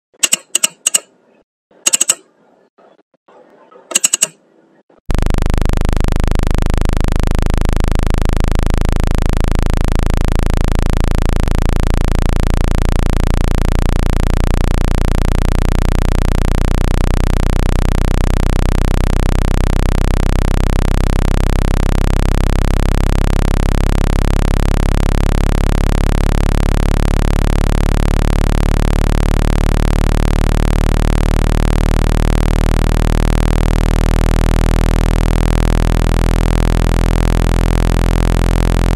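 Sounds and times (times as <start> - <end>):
low-pitched hum with hiss: 5.1 - 20.9.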